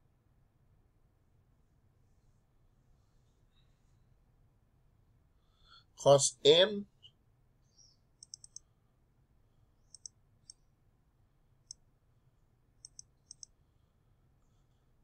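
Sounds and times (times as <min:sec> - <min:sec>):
computer mouse button clicks: 0:08.2 - 0:08.6, 0:12.8 - 0:13.5.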